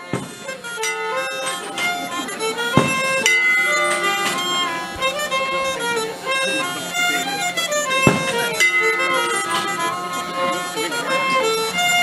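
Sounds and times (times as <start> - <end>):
sharp knocks: 0.0 - 0.4, 2.8 - 4.4, 8.0 - 10.0
fiddle: 0.0 - 12.0
reed instrument: 0.0 - 12.0.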